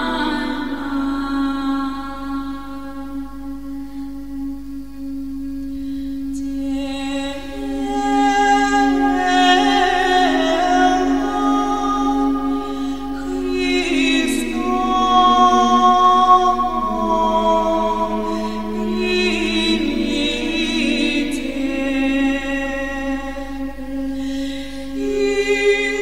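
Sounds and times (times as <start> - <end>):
unaccompanied choir singing: 0.0 - 3.2, 6.5 - 26.0.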